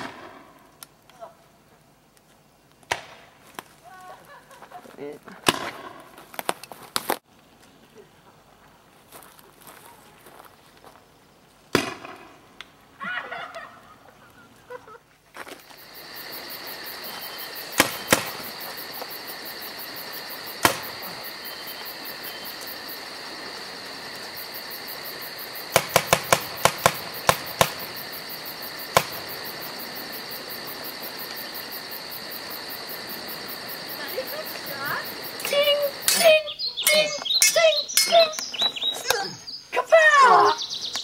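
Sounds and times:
insect chirring: 15.5 - 41.0
toy guns popping: 25.8 - 27.9.

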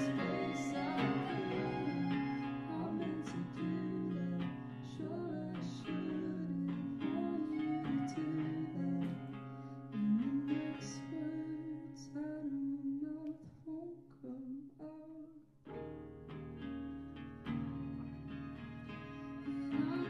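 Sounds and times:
violin: 0.0 - 4.3, 7.3 - 9.1, 17.5 - 20.0
woman singing: 0.0 - 9.3, 19.4 - 20.0
piano: 0.0 - 13.0, 15.6 - 20.0
acoustic guitar: 0.0 - 14.6, 15.7 - 20.0.

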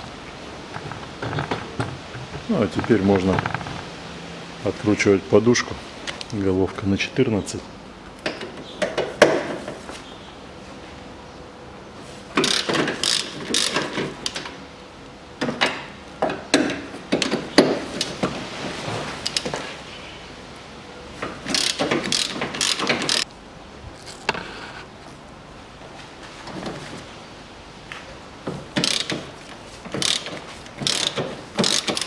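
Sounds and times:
ratchet wrench clicking: 12.4 - 14.4, 21.5 - 23.2, 28.8 - 29.2, 29.9 - 32.0.

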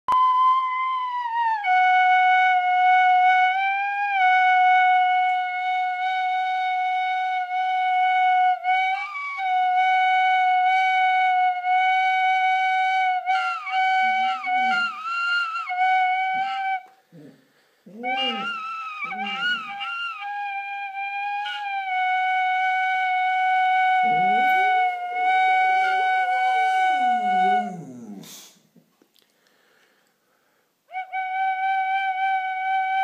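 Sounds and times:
tin whistle long notes: 0.1 - 17.0, 17.9 - 28.1
dog howling and whining: 14.3 - 20.3, 23.1 - 28.4.

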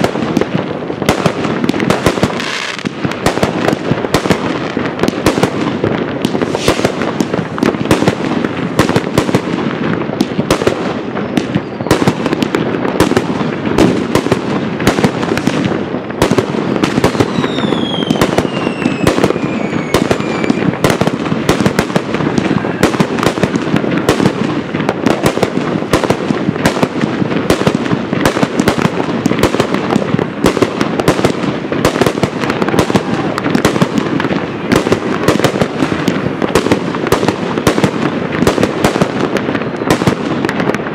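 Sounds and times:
fireworks bangs: 0.0 - 40.9
falling firework whistle: 11.2 - 12.2, 16.3 - 21.0.

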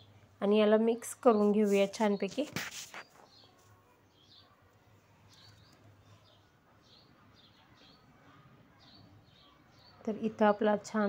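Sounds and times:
small bird chirping: 1.3 - 3.6, 5.2 - 8.1.

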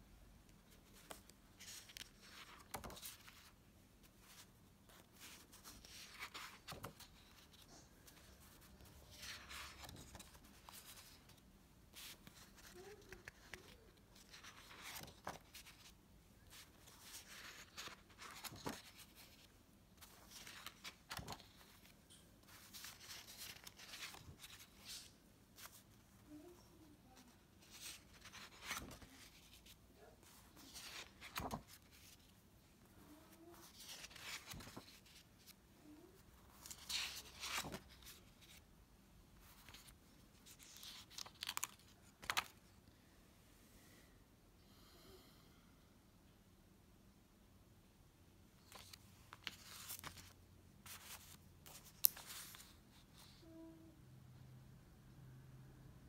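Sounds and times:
cardstock rustling and swishing: 16.5 - 26.0, 33.3 - 35.6.

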